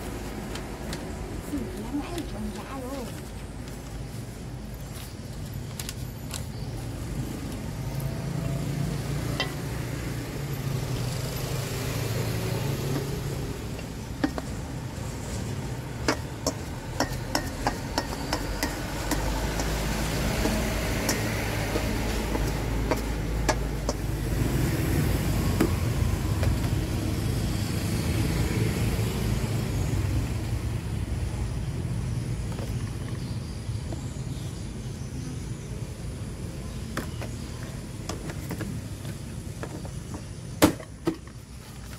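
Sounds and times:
vehicles passing on road: 0.0 - 41.9.

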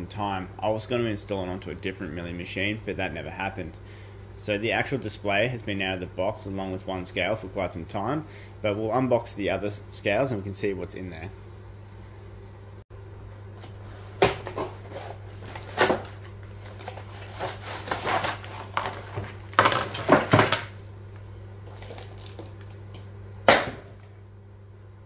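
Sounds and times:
steady low hum: 0.0 - 25.0
plastic bags rustling: 13.7 - 20.7, 21.6 - 22.8
cardboard packaging tearing: 14.2 - 20.7, 21.7 - 22.8
sharp knock: 23.5 - 23.9.

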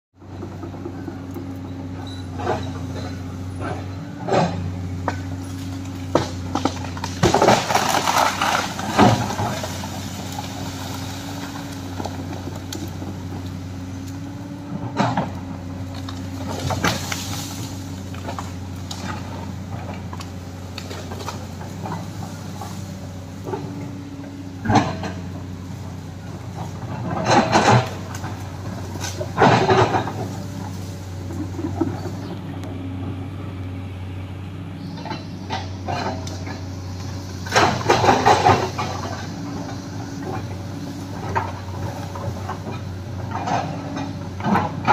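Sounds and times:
excavator diesel engine running: 0.2 - 44.9
wood cracking and crashing: 5.2 - 14.2, 15.0 - 23.4.

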